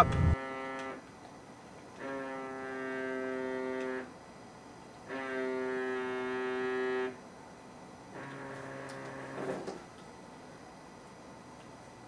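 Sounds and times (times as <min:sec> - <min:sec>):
mobile phone buzzing: 0:00.0 - 0:00.7.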